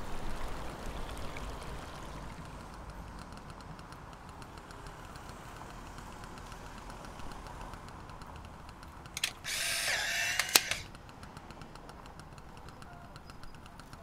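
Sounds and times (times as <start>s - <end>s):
camera motor whirring: 8.9s - 11.2s
camera shutter click: 9.2s - 10.9s.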